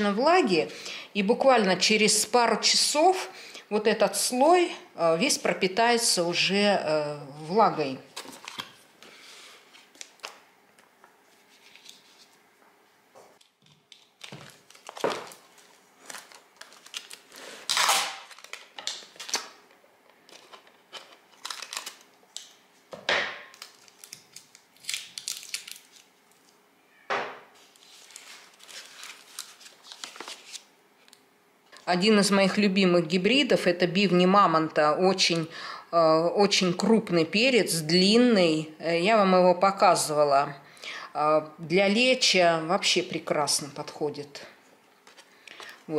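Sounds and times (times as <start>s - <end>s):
paper and plastic crinkling: 8.1s - 10.4s, 11.2s - 12.4s, 13.4s - 19.6s, 20.2s - 22.6s, 23.4s - 26.6s, 27.6s - 30.7s, 45.0s - 45.8s
sticky tape pulled from roll: 17.0s - 18.6s.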